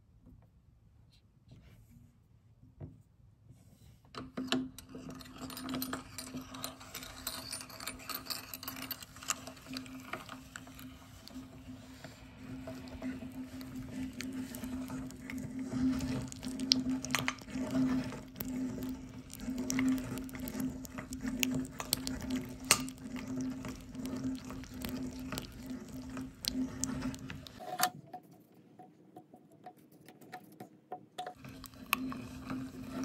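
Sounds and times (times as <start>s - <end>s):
wet squishing with clicks and pops: 12.3s - 27.6s.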